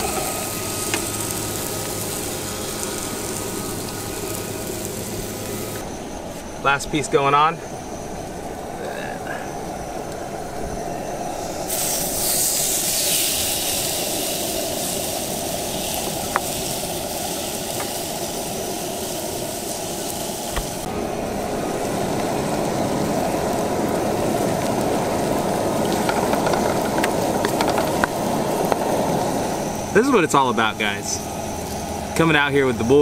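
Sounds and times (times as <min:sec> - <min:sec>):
eggs and onions frying in a wok: 0:00.0 - 0:05.8, 0:11.6 - 0:29.9
fish sizzling on a grill: 0:00.0 - 0:05.8, 0:11.4 - 0:33.0.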